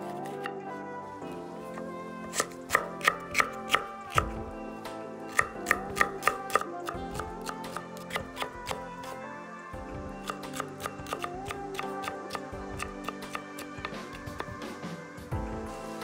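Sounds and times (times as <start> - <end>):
knife chopping on wooden board: 2.3 - 4.4, 5.3 - 8.8, 10.2 - 14.6.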